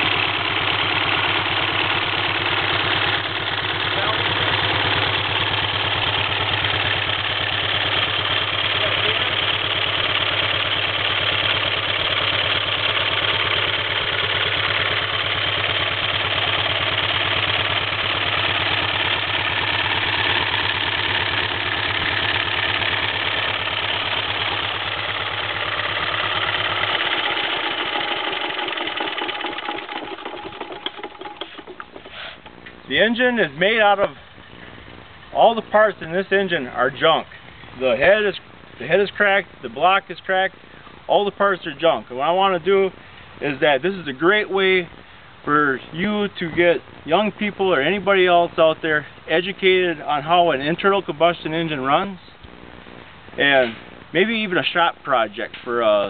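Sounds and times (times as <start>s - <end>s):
engine firing beat: 0.0s - 50.3s, 52.4s - 55.7s.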